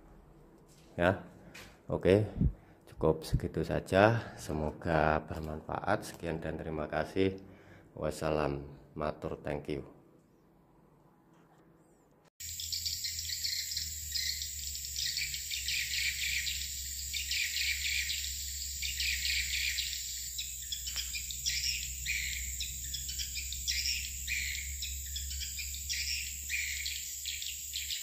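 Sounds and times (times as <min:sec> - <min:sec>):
swiftlets twittering: 0:12.4 - 0:28.0.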